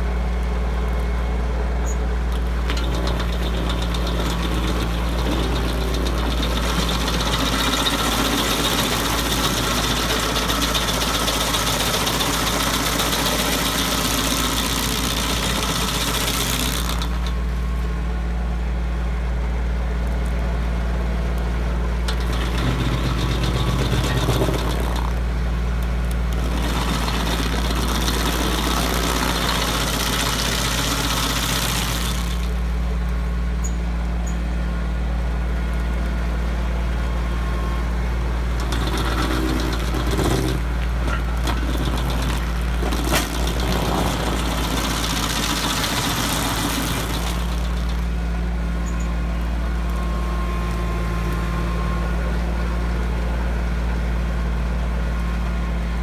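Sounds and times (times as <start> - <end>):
tractor engine running: 0.0 - 56.0
stump grinder grinding: 2.3 - 18.0, 22.0 - 32.8, 37.5 - 52.5.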